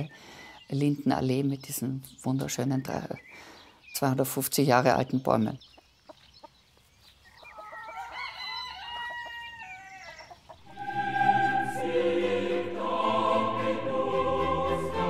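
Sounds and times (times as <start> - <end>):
rooster crowing: 7.5 - 11.9
choir music: 10.6 - 15.0.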